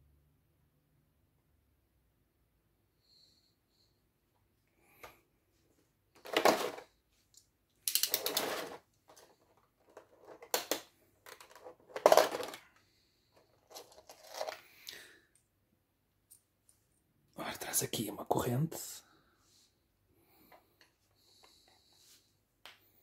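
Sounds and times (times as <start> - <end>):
plastic tray crinkling: 13.6 - 14.7.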